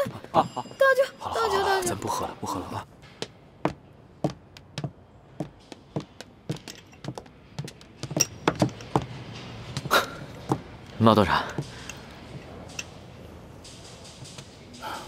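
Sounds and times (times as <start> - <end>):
hard-soled footsteps on hard floor: 3.1 - 10.7.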